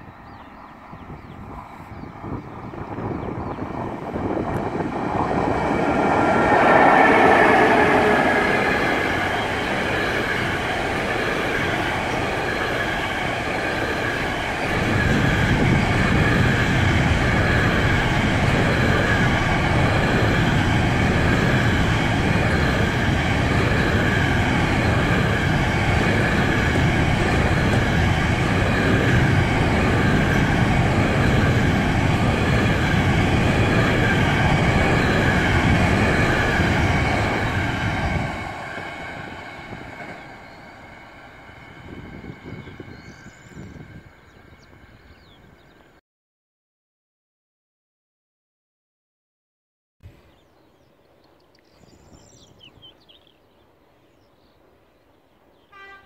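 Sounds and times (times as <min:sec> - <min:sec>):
train wheels rumbling on track: 0:00.0 - 0:45.8.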